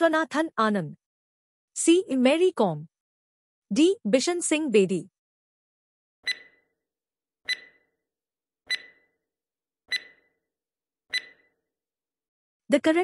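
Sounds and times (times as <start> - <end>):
countdown timer ticks: 6.2 - 6.6, 7.4 - 7.9, 8.7 - 9.1, 9.9 - 10.3, 11.1 - 11.5.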